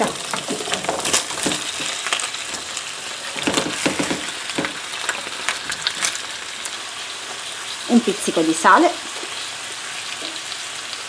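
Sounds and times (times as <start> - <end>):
pumpkin slices knocking into pan: 0.0 - 2.7, 3.3 - 4.8
oil sizzling: 0.0 - 11.0.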